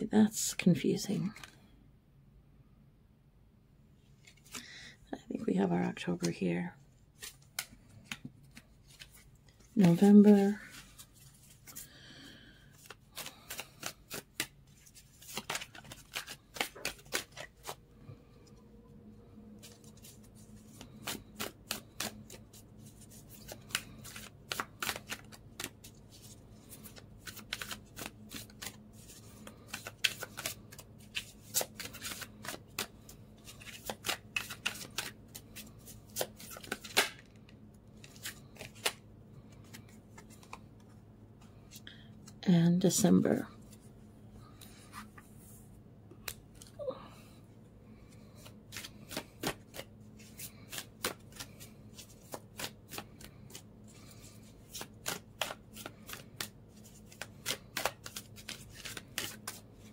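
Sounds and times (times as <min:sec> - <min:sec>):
cards being shuffled: 0:01.1 - 0:01.6, 0:07.2 - 0:17.8, 0:19.6 - 0:42.4, 0:48.0 - 0:59.9.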